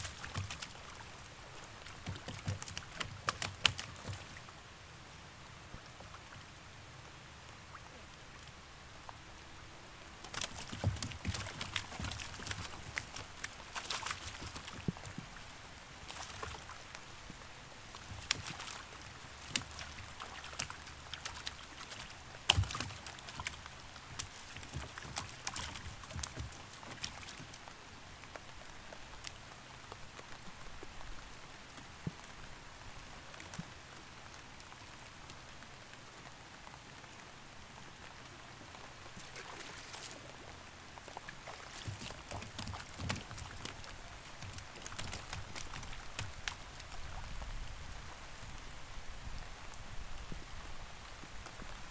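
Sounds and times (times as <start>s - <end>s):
light rain pattering on water: 0.0s - 51.9s
knocks and taps in a boat: 10.6s - 12.7s.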